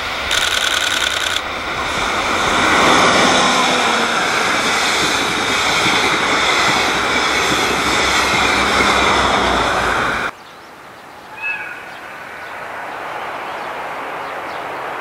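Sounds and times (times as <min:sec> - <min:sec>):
train wheels rumbling past: 0:00.0 - 0:10.3.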